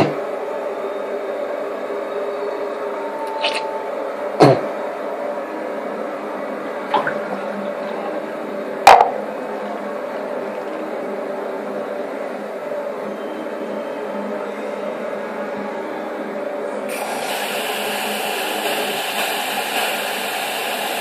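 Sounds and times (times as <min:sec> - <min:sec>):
hard objects knocking on counter: 0:08.9 - 0:09.2.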